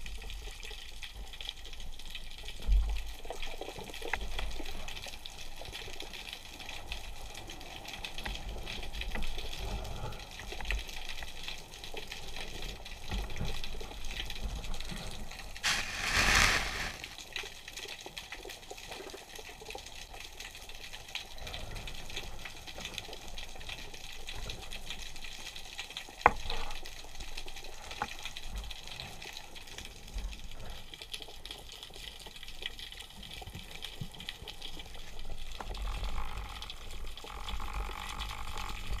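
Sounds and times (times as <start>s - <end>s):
rushing swirl of water: 15.6s - 17.2s.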